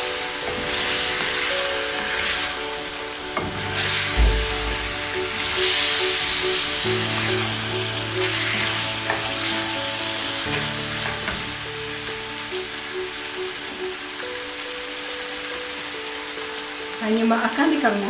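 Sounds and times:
chicken sizzling in frying pan: 0.0 - 18.0
spatula scraping pan: 0.4 - 11.6.

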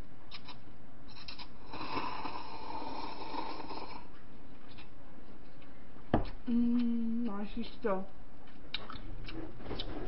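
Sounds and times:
person slurping a drink: 1.1 - 4.1.

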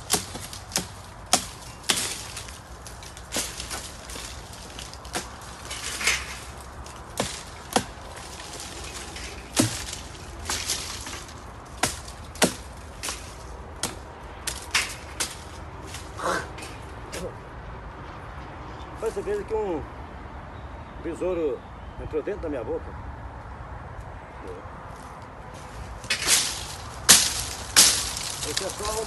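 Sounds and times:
machete chopping wood: 0.0 - 17.3, 26.1 - 29.0
leafy branches rustling: 0.0 - 17.5, 24.8 - 29.0.

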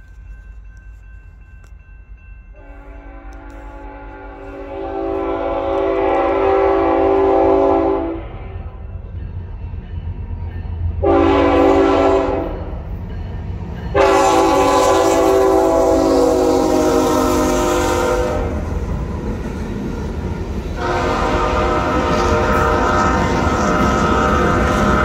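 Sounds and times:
train engines and cars rumbling: 0.0 - 25.0
locomotive air horn blasts: 2.6 - 8.8, 11.0 - 12.7, 13.9 - 18.7, 20.8 - 25.0.

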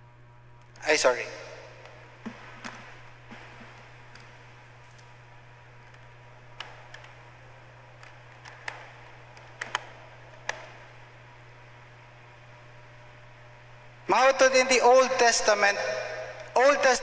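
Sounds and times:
low electrical hum: 0.0 - 17.0
laptop clicks: 1.8 - 5.2, 5.8 - 11.0.

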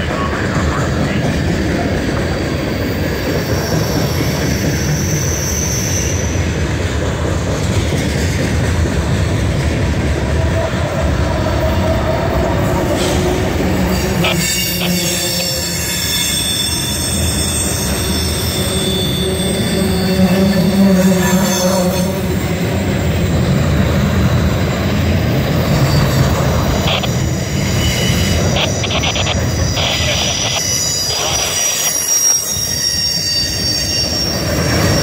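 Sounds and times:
train wheels rumbling on rails: 0.0 - 35.0
high wheel squeals: 2.4 - 6.8, 12.6 - 35.0.

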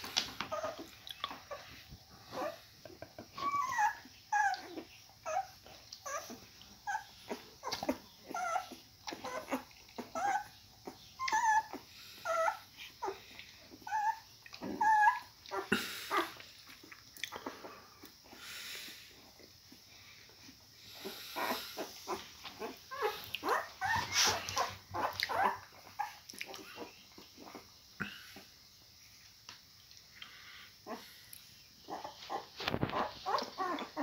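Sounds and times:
puppies squeaking and whimpering: 0.1 - 16.4, 20.8 - 27.6, 31.8 - 34.0.

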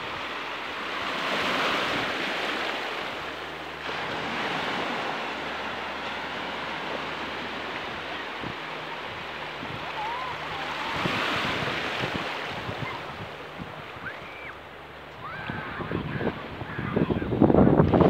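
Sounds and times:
small waves breaking on sand: 0.0 - 18.0.

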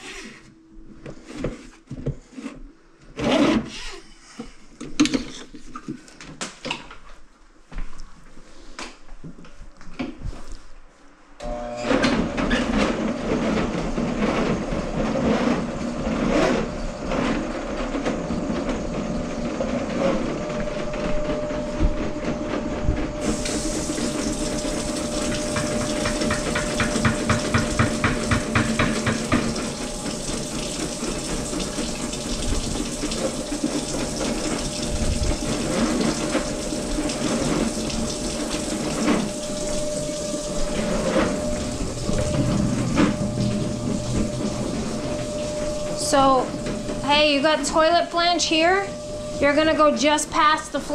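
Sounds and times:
drain cleaning machine motor humming: 11.4 - 50.9.

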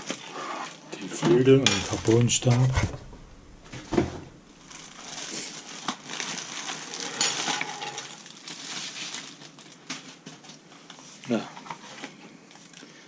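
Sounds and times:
plastic bag crinkling: 1.8 - 10.6.

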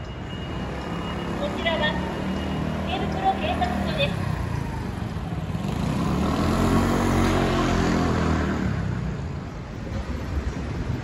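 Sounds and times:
street noise: 0.0 - 11.0
motor scooter passing by: 0.9 - 9.3.

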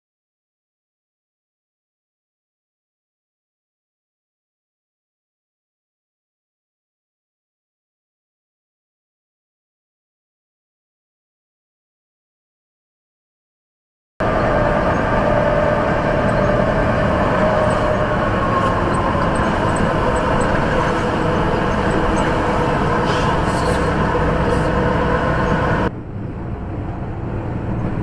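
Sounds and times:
road noise: 14.2 - 28.0
truck engine drone: 14.2 - 28.0.

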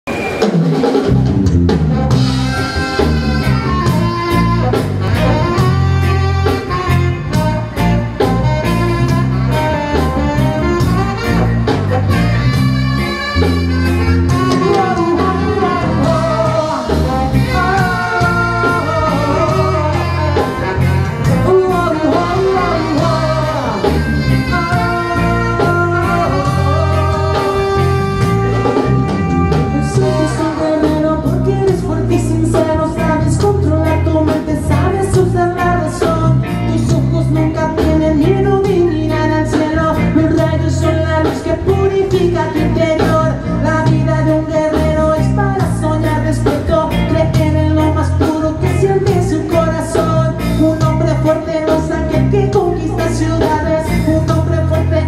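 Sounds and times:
drum kit steady beat: 0.1 - 55.0
electric guitar: 0.1 - 55.0
saxophones and brass: 1.9 - 37.3
male lead vocal: 2.3 - 11.5, 14.2 - 55.0.

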